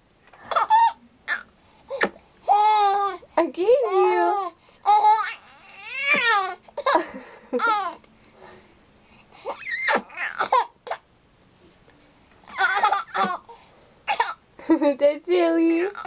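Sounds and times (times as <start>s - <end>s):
baby laughing in squeals: 0.5s - 3.1s, 9.4s - 10.7s, 12.4s - 13.5s.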